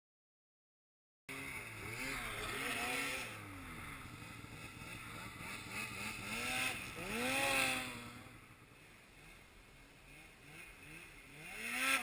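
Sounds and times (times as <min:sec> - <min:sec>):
snowmobile engines revving: 0:01.3 - 0:12.0.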